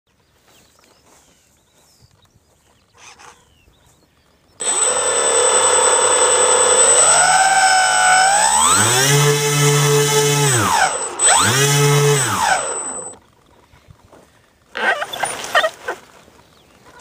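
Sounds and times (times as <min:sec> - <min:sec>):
quadcopter motors whining: 0:04.6 - 0:13.2, 0:14.8 - 0:15.7.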